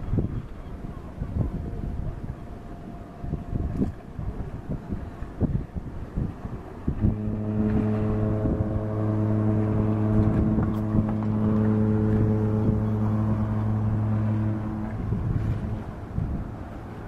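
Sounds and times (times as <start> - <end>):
wind buffeting microphone: 0.0 - 17.0
ship horn blast: 6.8 - 17.0.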